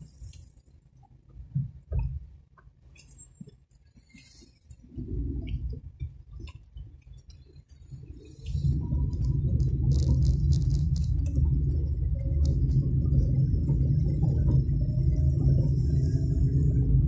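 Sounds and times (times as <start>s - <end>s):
low car rumble: 4.9s - 17.0s.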